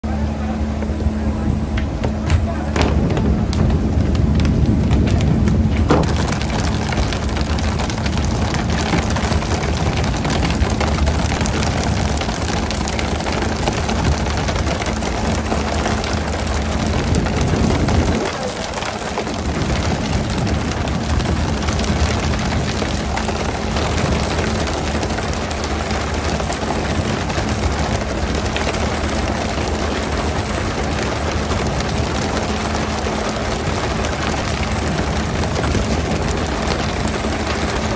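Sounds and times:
low engine hum: 0.0 - 37.9
wind: 0.0 - 37.9.

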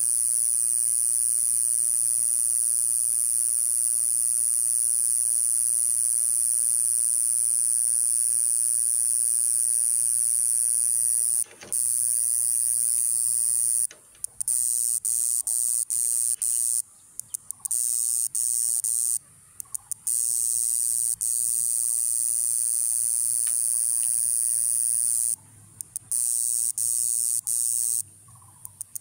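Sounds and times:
cicada buzzing: 0.0 - 29.0.

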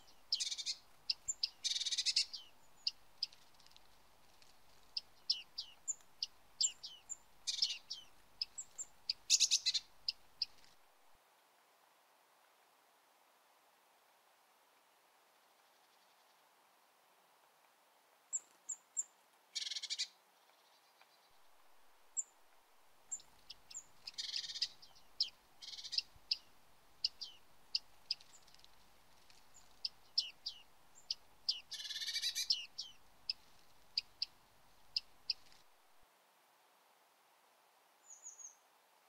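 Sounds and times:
short high bird calls: 0.0 - 3.5, 4.8 - 10.6, 19.6 - 20.2, 23.1 - 28.5, 29.5 - 35.6.

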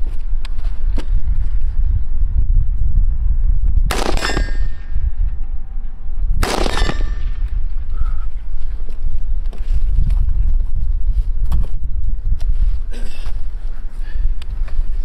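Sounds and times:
low rumble: 0.0 - 15.0
bullets clanging on steel target: 4.0 - 5.0, 6.7 - 7.4.

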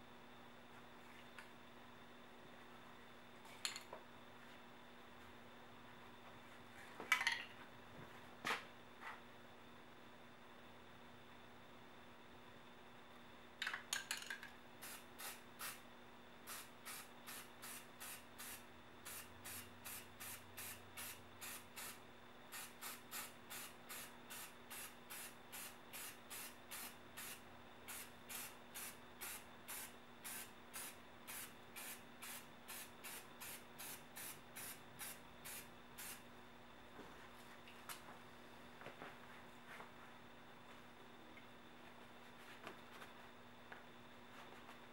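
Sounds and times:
spray paint can hissing: 14.8 - 15.8, 16.5 - 36.2.

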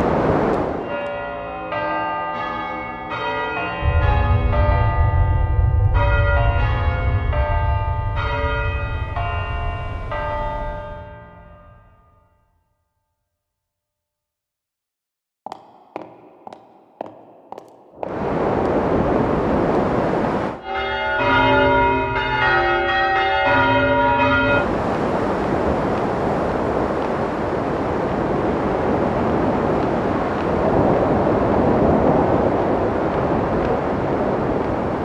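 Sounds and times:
dense noise wash: 0.0 - 1.0, 3.7 - 11.1, 15.5 - 22.9, 23.8 - 35.0
high-heel steps: 15.5 - 18.9.

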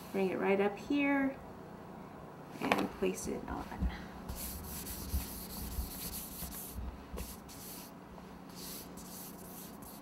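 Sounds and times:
hands rubbing fondant: 4.3 - 7.9, 8.5 - 10.0.

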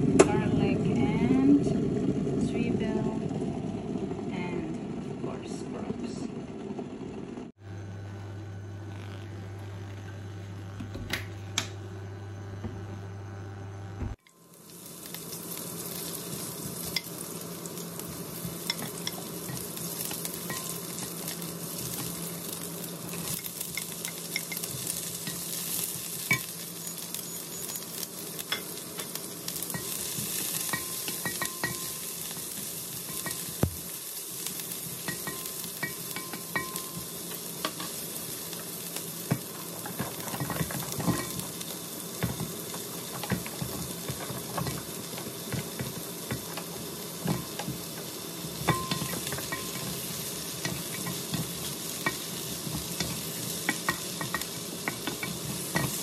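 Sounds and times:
food sizzling in hot oil: 8.3 - 56.0
pumpkin chunks clattering into wok: 39.2 - 56.0.

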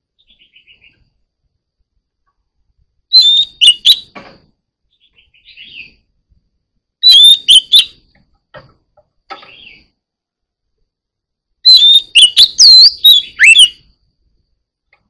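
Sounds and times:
bird song bursts: 0.1 - 1.2, 3.1 - 4.2, 4.9 - 6.1, 7.0 - 8.0, 9.4 - 10.0, 11.6 - 14.0
soft warbled bird phrase: 0.2 - 1.1.

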